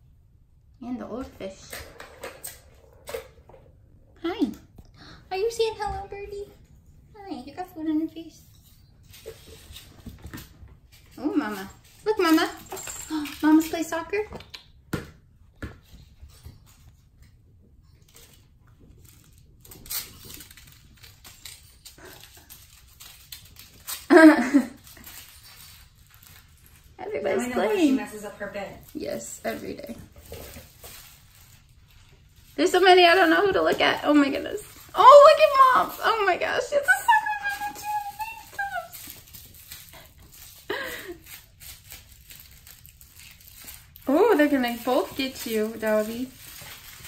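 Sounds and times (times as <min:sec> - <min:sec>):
kittens tapping and rustling: 0:08.5 - 0:47.0
kitten voice: 0:36.8 - 0:39.1.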